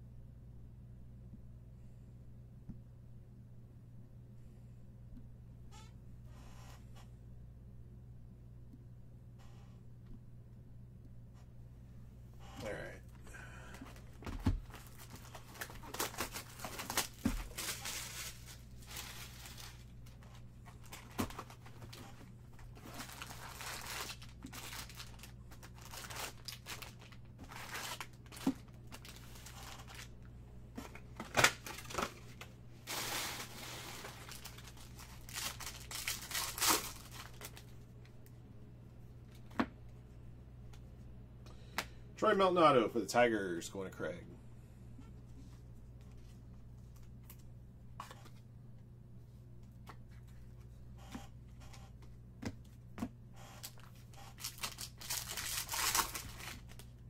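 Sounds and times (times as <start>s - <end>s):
cards being shuffled: 13.8s - 30.1s, 52.0s - 56.9s
wrappers crinkling: 13.9s - 30.2s, 31.4s - 37.8s, 53.6s - 57.0s
card wrappers tearing: 14.6s - 30.2s, 31.2s - 37.7s, 53.6s - 56.9s.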